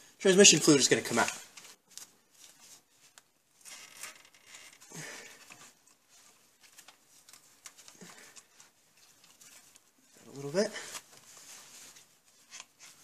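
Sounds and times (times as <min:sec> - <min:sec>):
scraping and crinkling: 0:01.0 - 0:13.0.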